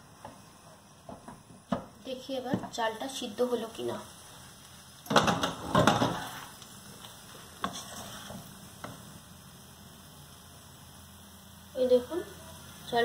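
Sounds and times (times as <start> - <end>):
spatula tapping pan: 5.0 - 6.3
spatula scraping rice in pan: 5.3 - 6.6, 7.4 - 9.0.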